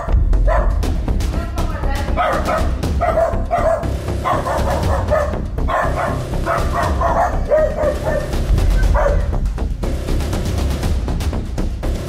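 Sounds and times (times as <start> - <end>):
dogs barking: 0.0 - 0.9, 2.1 - 9.4.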